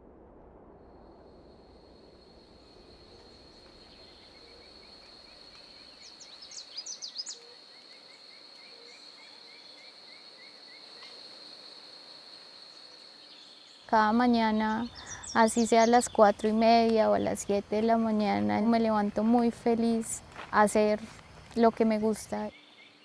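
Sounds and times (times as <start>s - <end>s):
high-pitched insect trill: 1.5s - 23.0s.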